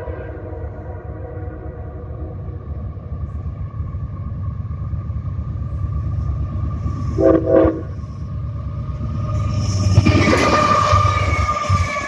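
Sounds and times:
diesel locomotives rumbling: 0:00.0 - 0:12.0
locomotive horn blasts: 0:07.2 - 0:08.0.

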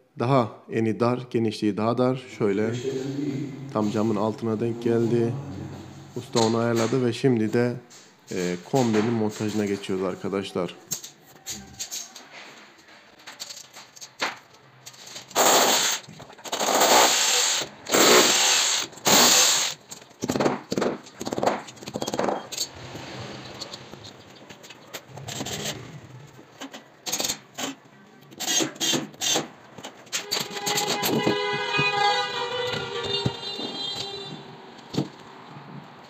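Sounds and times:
drill boring into tiled wall: 0:15.3 - 0:19.8.

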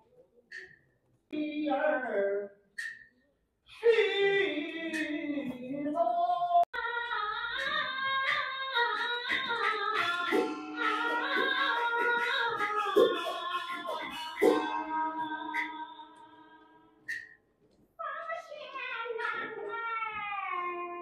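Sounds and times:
woman singing opera: 0:03.8 - 0:14.2.

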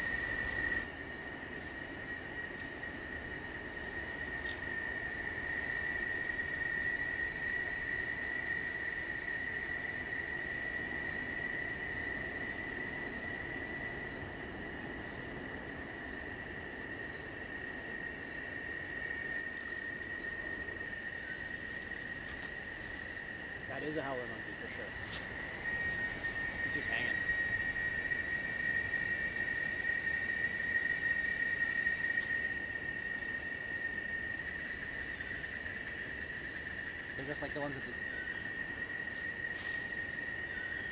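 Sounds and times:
insect chorus high buzz: 0:00.0 - 0:40.9.

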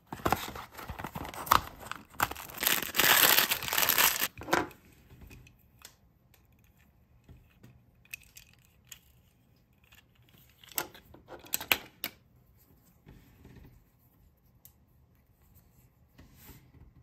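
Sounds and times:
handling sounds: 0:00.0 - 0:04.4
toy packaging clicks and crackles: 0:00.2 - 0:04.4.

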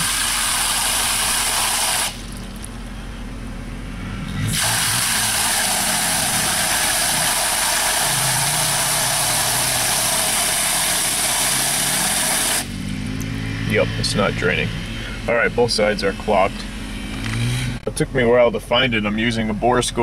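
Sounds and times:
water hissing from hose nozzle: 0:00.0 - 0:02.6, 0:04.5 - 0:12.7
car engine idling: 0:00.0 - 0:20.0.

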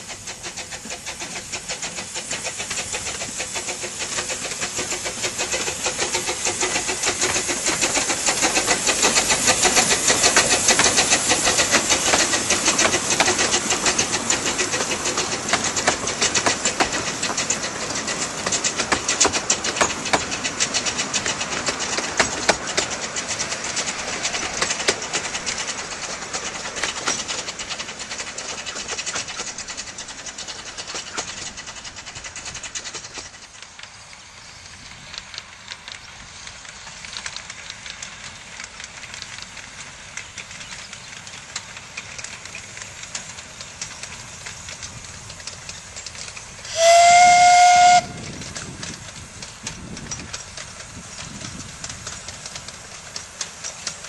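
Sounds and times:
steam train running on rails: 0:00.0 - 0:54.0
steam whistle: 0:46.7 - 0:48.2.

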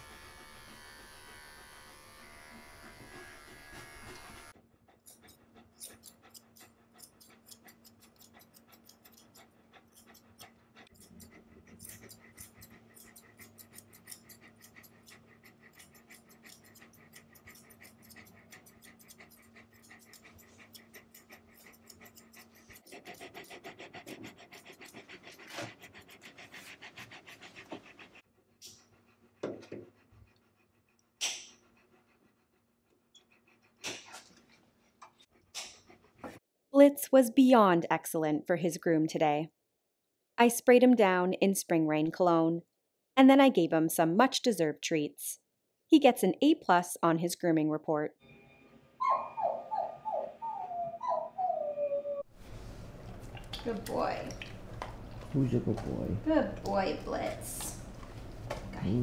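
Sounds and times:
dog panting: 0:02.5 - 0:36.4, 0:52.4 - 0:59.0.

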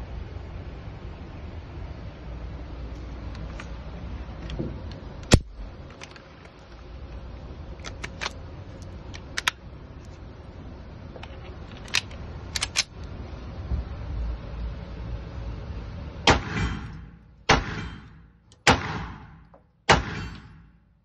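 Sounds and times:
steady background noise: 0:00.0 - 0:21.0
pistol parts clicking and snapping: 0:07.8 - 0:09.6, 0:11.2 - 0:13.1
loud sharp crack: 0:16.3 - 0:20.8.

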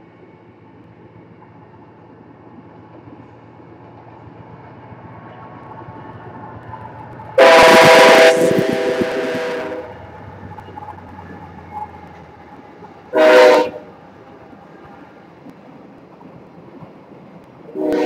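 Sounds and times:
locomotive rumble: 0:00.4 - 0:18.0
locomotive air horn blast: 0:07.4 - 0:10.0, 0:13.1 - 0:13.9, 0:17.8 - 0:18.0.

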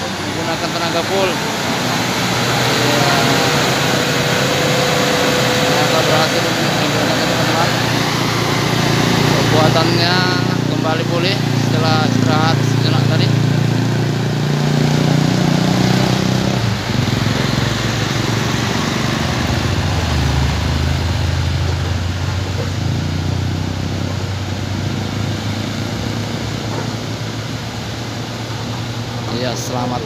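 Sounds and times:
truck diesel engine straining: 0:00.0 - 0:30.0
vehicles passing: 0:00.0 - 0:30.0.

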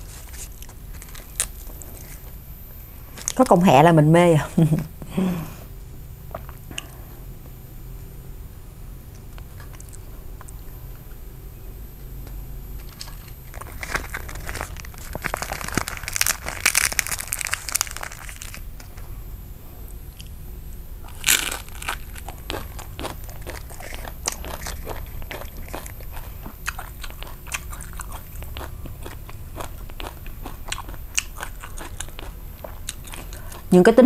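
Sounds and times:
crunching bites: 0:12.8 - 0:19.0, 0:21.0 - 0:33.7
chewing clicks: 0:22.2 - 0:33.6.

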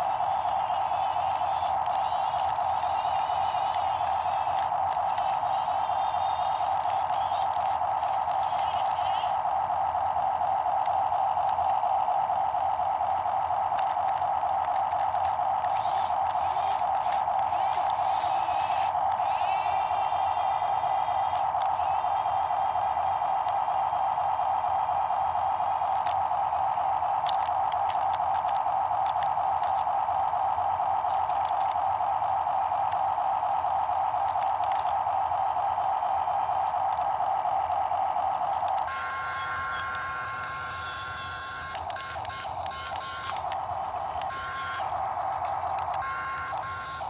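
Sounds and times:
toy gear motors whining: 0:00.0 - 0:47.0
faint clicks: 0:00.6 - 0:18.2, 0:27.0 - 0:30.0, 0:34.2 - 0:35.2, 0:36.7 - 0:47.0.

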